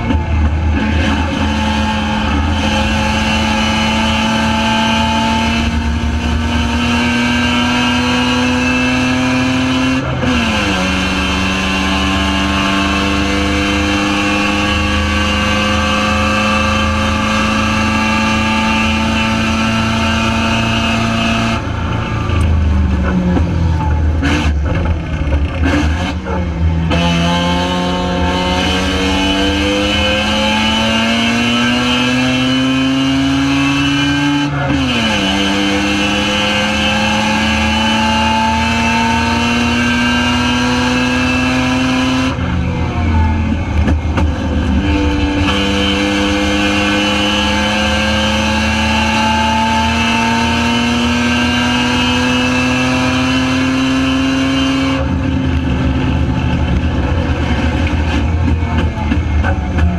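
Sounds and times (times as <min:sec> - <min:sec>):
race car rotary engine revving: 0:00.0 - 0:59.9.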